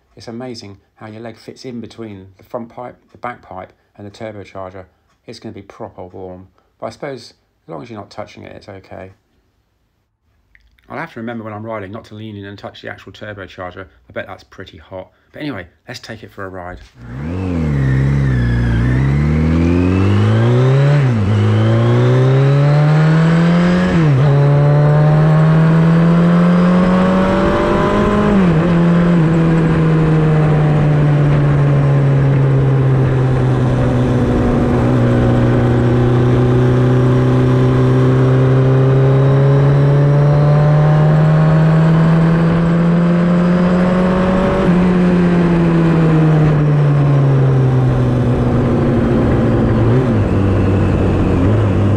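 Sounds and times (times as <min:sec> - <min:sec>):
motorcycle engine revving through gears: 0:16.9 - 0:51.9.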